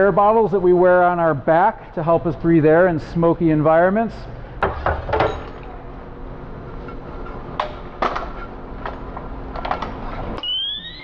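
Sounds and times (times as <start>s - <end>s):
rising whistling tone: 10.4s - 11.0s.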